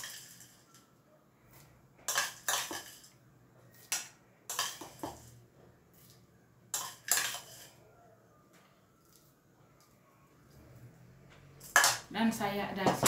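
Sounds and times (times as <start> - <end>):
metal spoon scraping ceramic bowl: 6.7 - 7.8.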